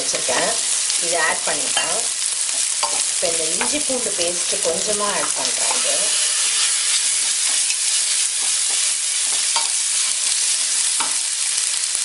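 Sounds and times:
vegetables sizzling in hot oil: 0:00.0 - 0:12.0
spatula scraping pan: 0:01.7 - 0:11.2.

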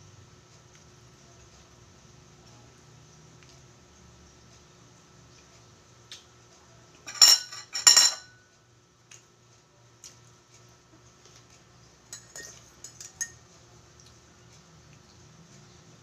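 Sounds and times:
spoon clinking against glass mug: 0:07.1 - 0:08.3, 0:12.1 - 0:13.4.

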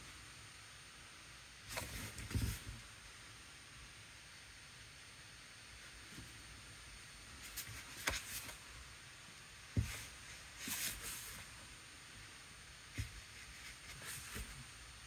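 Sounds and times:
paper rustling: 0:07.4 - 0:08.7, 0:09.8 - 0:11.5, 0:13.0 - 0:14.7.

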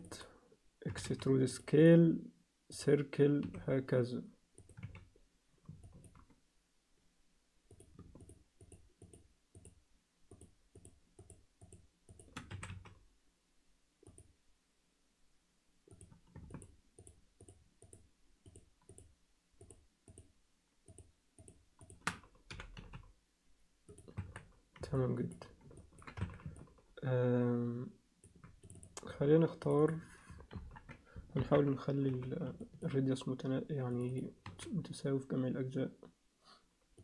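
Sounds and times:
computer keyboard and mouse clicking: 0:04.6 - 0:06.4, 0:07.7 - 0:13.0, 0:15.9 - 0:20.3, 0:20.9 - 0:23.1, 0:23.9 - 0:26.8, 0:28.2 - 0:29.1, 0:30.3 - 0:31.0.

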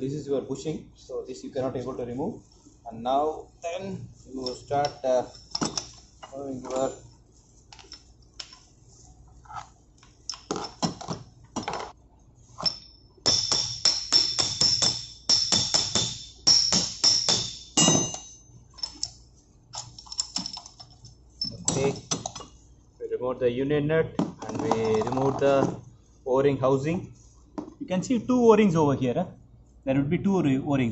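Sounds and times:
hammer striking spanner: 0:04.4 - 0:06.0, 0:12.6 - 0:19.1, 0:21.4 - 0:22.5
metal parts clinking: 0:04.4 - 0:07.0, 0:16.5 - 0:22.5.

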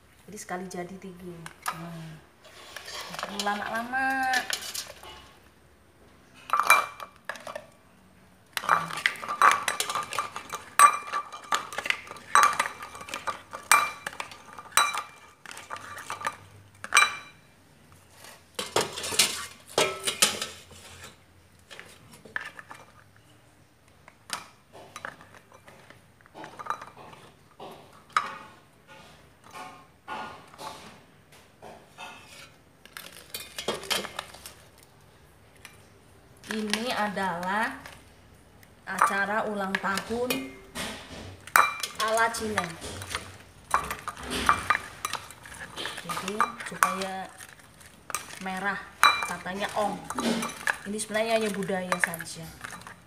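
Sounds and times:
spoon and eggs clinking on pot: 0:06.4 - 0:07.8, 0:08.6 - 0:17.5, 0:18.2 - 0:23.0, 0:24.3 - 0:28.6, 0:32.0 - 0:34.6, 0:38.9 - 0:53.0.

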